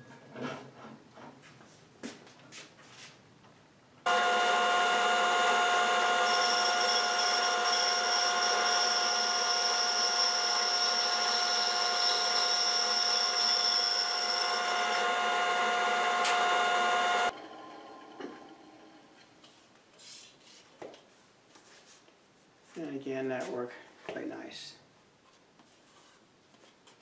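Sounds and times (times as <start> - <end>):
band saw humming: 4.1 - 17.3
saw blade whine in wood: 4.1 - 19.1.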